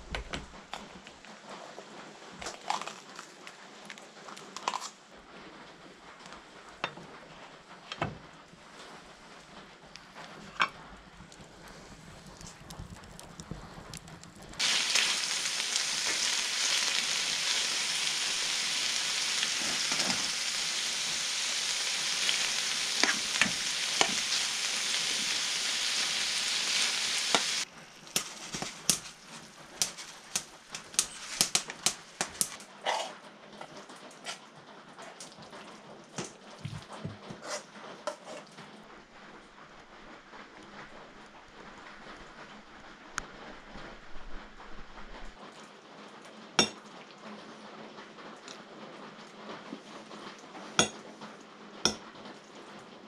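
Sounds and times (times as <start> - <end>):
spitting and crackling: 11.2 - 33.2
food sizzling in a pan: 11.6 - 33.2, 46.6 - 46.8, 50.8 - 51.0, 51.8 - 52.0.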